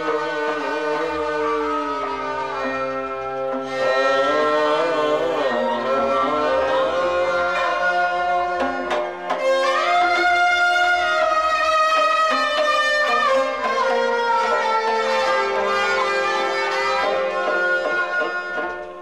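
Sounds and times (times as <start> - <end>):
bowed sarangi melody: 0.0 - 19.0
plucked lutes: 0.0 - 19.0
goblet drum beat: 6.8 - 19.0.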